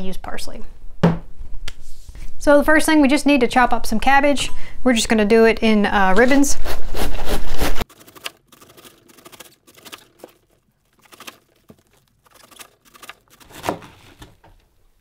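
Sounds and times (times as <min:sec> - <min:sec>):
knife slicing cabbage on board: 0:13.4 - 0:14.3.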